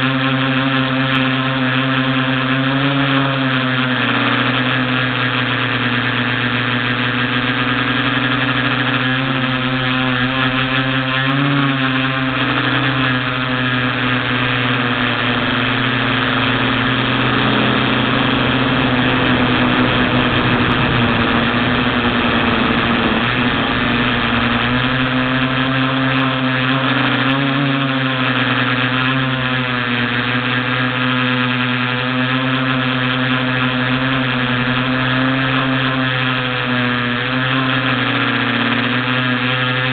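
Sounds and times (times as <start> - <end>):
drone propellers droning: 0.0 - 39.9
rushing noise: 16.0 - 25.8.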